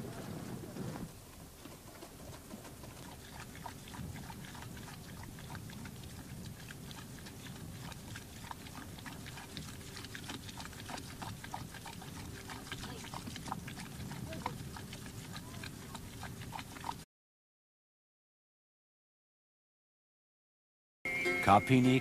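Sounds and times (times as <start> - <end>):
low steady rumble: 0.0 - 17.0
milk squirting and clicking: 1.6 - 17.0.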